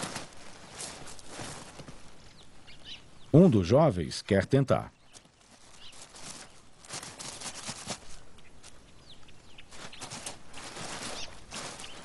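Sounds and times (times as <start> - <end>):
squirrel digging in sand: 0.0 - 2.6, 5.0 - 8.9, 9.5 - 12.0.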